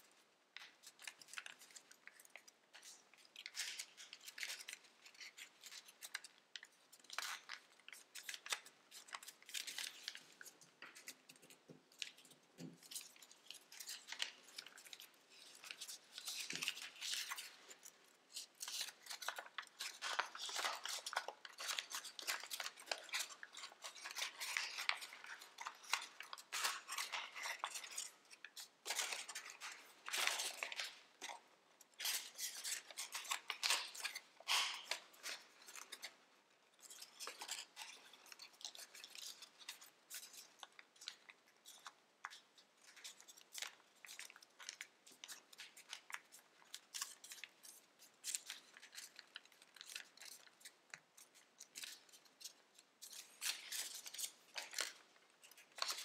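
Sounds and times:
foil paper crinkling: 0.6 - 36.2.

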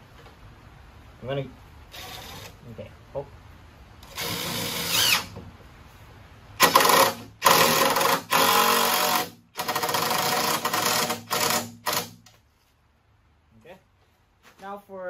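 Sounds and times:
impact driver driving screws: 4.0 - 5.4, 6.6 - 12.3.

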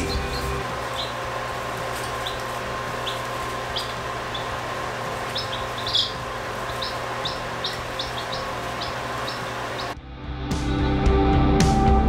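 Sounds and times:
chicks peeping: 0.0 - 10.0
steady background hum: 0.0 - 10.0.

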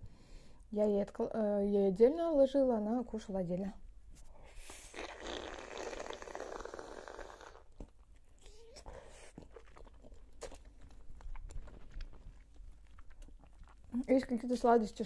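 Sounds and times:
wet chewing and sucking: 4.4 - 15.0
mouth clicks and smacks: 4.6 - 14.8.

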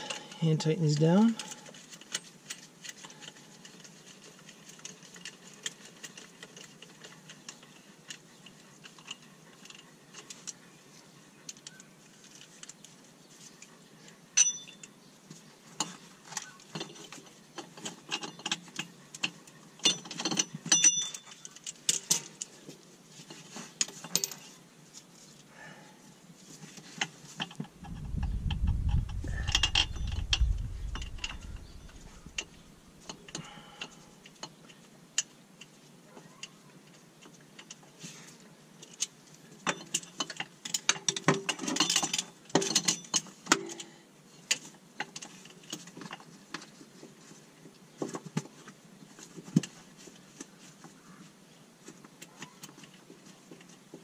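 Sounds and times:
low rumble: 27.8 - 32.9.

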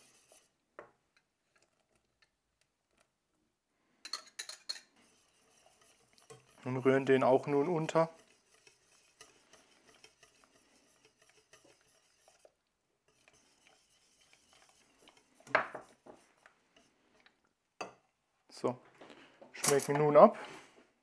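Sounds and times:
whisk scraping metal pot: 0.0 - 0.6, 4.7 - 17.1.

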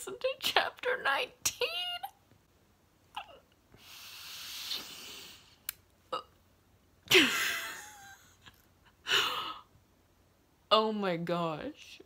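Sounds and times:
woman gasping: 9.0 - 9.7.

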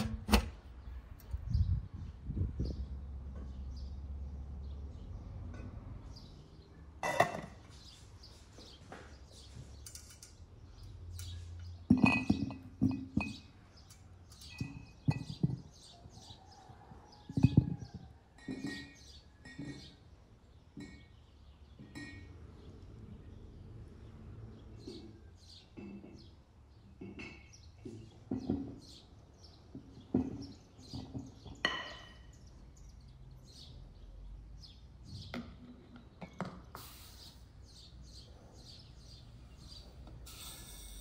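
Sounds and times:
knocks and clinks: 11.2 - 15.8, 17.3 - 20.0, 21.8 - 22.4
birds chirping: 24.5 - 41.0.

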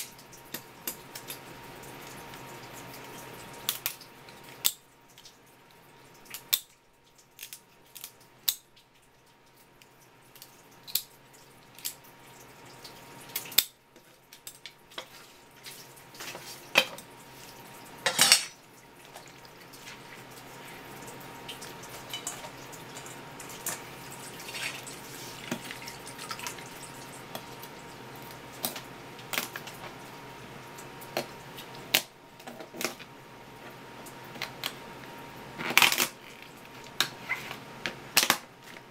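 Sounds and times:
scissors cracking crab shell: 3.6 - 4.0, 6.3 - 6.7, 7.4 - 8.7, 10.4 - 11.1, 11.8 - 12.0, 35.6 - 36.2.

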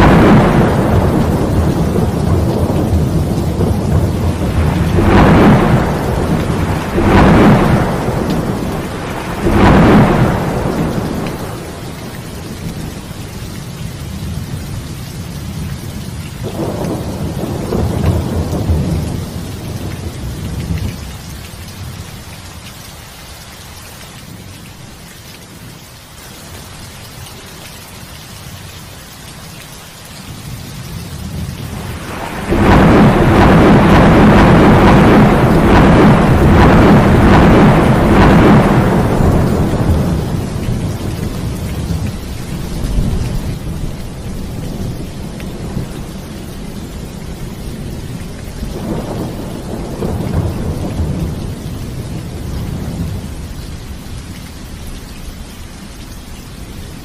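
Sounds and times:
rolling thunder: 0.0 - 14.8, 16.4 - 21.2, 30.5 - 54.2
heavy rain: 0.0 - 57.0.

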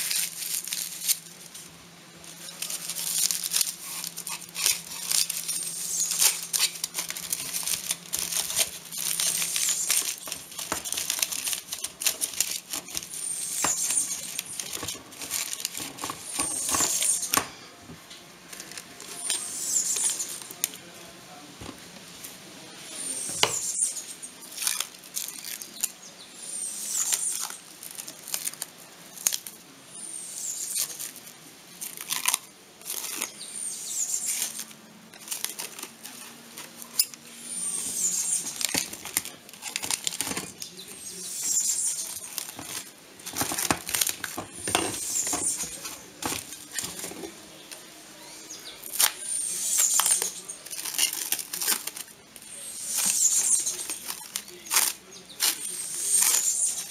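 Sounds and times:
cling film crackling and rustling: 0.0 - 20.9, 27.0 - 29.6, 34.2 - 47.9, 48.8 - 56.9.

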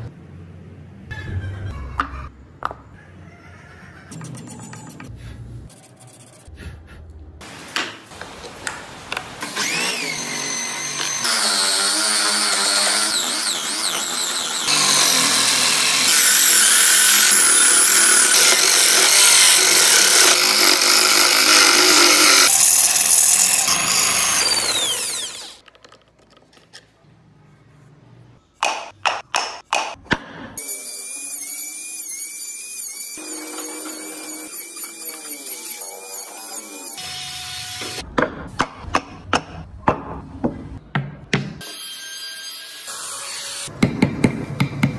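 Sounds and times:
chisel cutting wood on lathe: 9.5 - 25.6, 30.7 - 38.0
rotary tool whining: 9.6 - 25.6.

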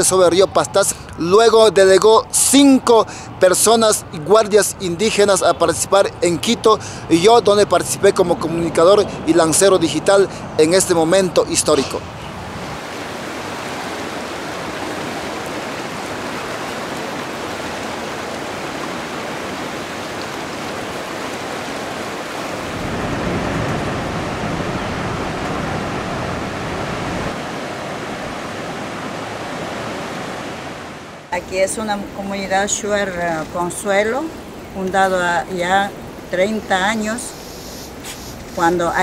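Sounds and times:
river rushing over rocks: 12.4 - 37.3.

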